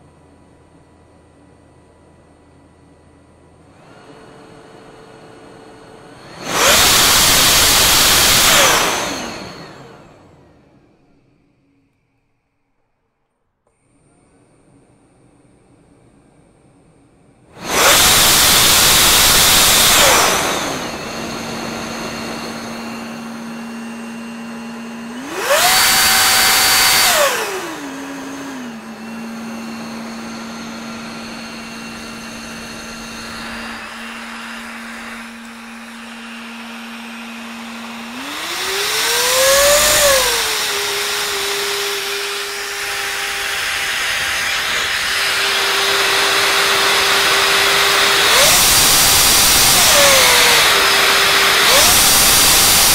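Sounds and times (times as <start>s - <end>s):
electric supercharger motor whine: 3.5s - 12.3s, 17.5s - 52.9s
loud rush of air: 30.5s - 37.3s.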